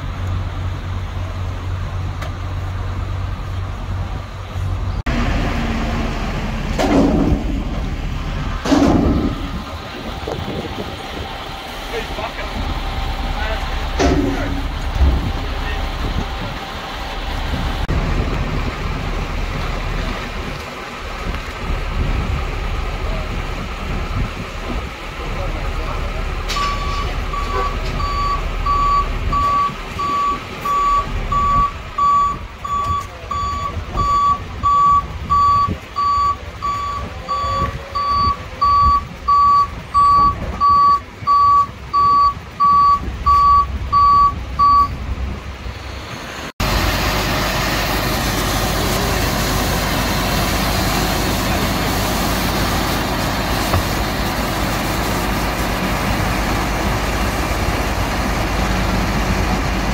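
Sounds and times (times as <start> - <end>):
engine rumble: 0.0 - 59.9
reversing alarm beeping: 26.6 - 45.0.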